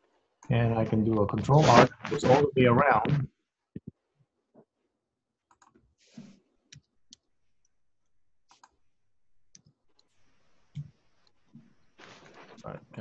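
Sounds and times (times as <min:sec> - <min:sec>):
faint mouse and keyboard clicks: 0:05.5 - 0:07.3, 0:08.5 - 0:08.8.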